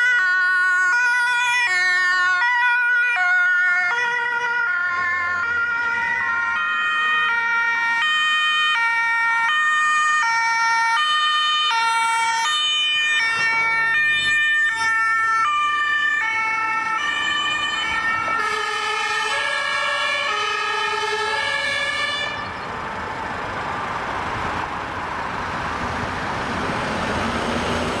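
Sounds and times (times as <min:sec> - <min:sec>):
two-tone ambulance siren: 0:00.0 - 0:26.0
car passing close by: 0:22.1 - 0:28.0.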